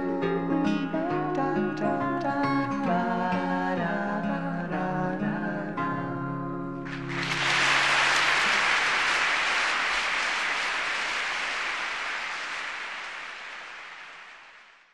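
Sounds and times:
audience applause: 6.9 - 14.9.

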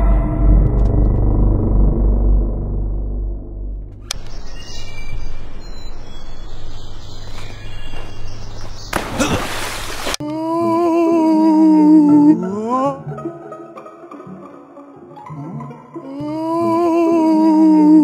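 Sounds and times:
low hum: 0.0 - 9.2
birds chirping: 4.0 - 10.2
plucked string music: 11.9 - 17.2.

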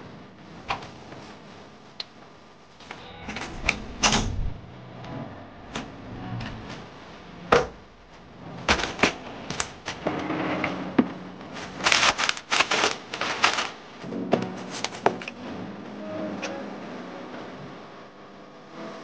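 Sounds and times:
towel rustling: 11.5 - 14.0.

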